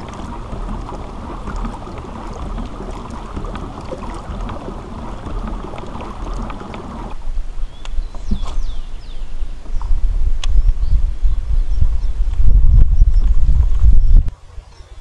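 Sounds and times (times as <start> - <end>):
kayak rushing through water: 0.0 - 7.3.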